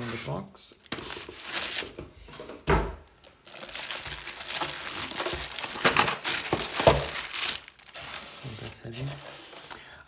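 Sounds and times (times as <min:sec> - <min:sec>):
plastic wrap crinkling on styrofoam: 0:00.8 - 0:02.0, 0:03.0 - 0:09.8.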